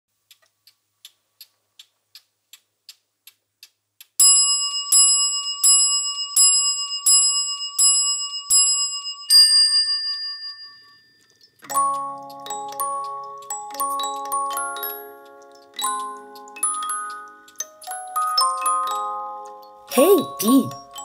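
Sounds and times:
clock ticking softly: 0.1s - 4.6s, 11.2s - 21.0s.

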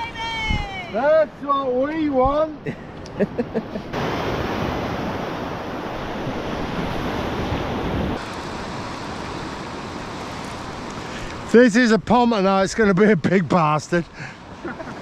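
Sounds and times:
wind on microphone: 0.0s - 0.9s, 3.8s - 8.2s
ocean surf breaking: 0.8s - 15.0s.

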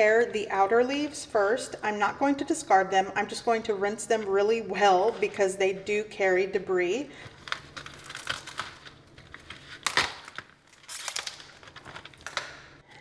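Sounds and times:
cabbage leaves tearing and snapping: 7.4s - 12.7s.

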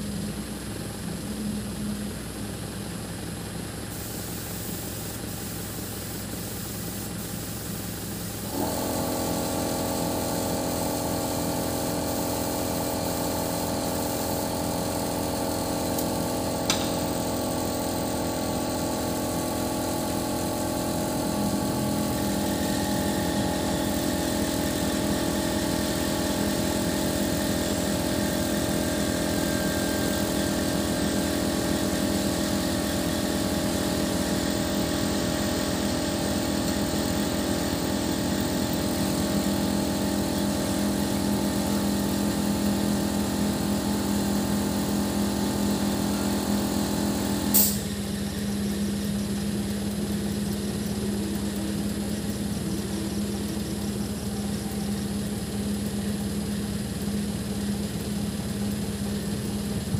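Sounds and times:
crane engine running: 0.0s - 59.9s
hydraulic whine: 4.1s - 59.9s
sharp click: 16.7s - 17.0s.

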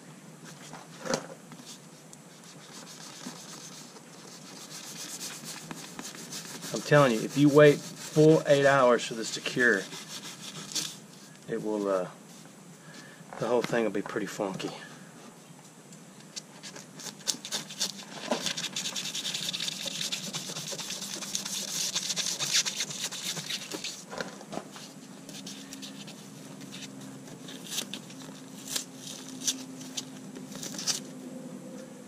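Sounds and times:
knife scraping through foam: 2.4s - 11.0s, 17.0s - 24.1s.

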